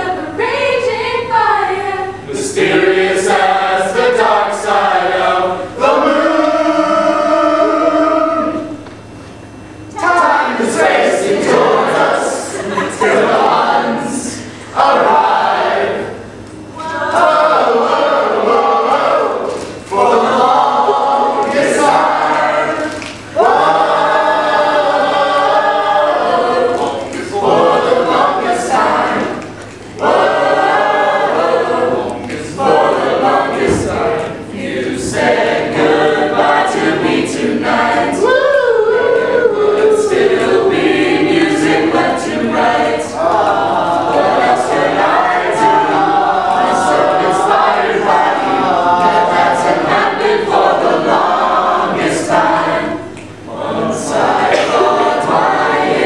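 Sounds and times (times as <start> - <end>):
mixed choir singing: 0.0 - 56.0
singers breathing: 14.3 - 14.8.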